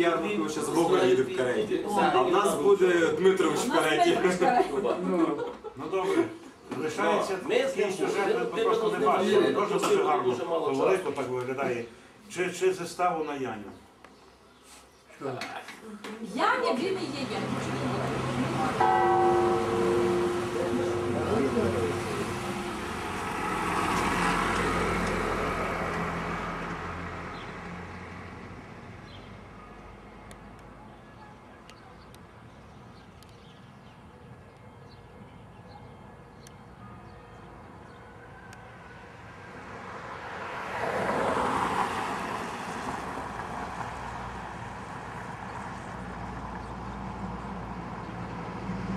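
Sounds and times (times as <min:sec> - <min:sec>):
motor vehicle passing by: 0:16.4 - 0:29.6, 0:38.8 - 0:48.9
car driving past: 0:17.0 - 0:29.3, 0:38.9 - 0:48.9
low engine hum of car: 0:17.0 - 0:29.3.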